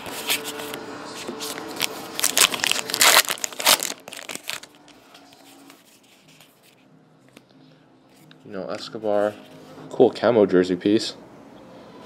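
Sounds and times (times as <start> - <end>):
foil wrapper tearing and crinkling: 1.8 - 4.7.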